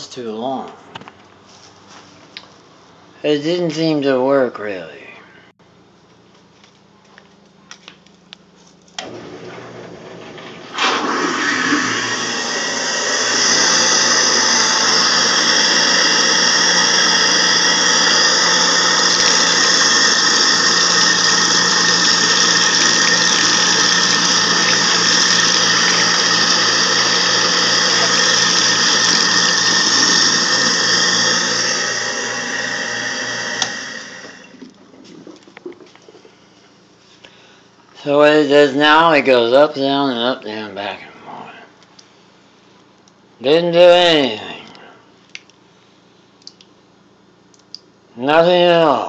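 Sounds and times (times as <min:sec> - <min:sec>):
garbage disposal motor hum: 0:08.8 - 0:38.2
tap water pouring: 0:13.3 - 0:36.3.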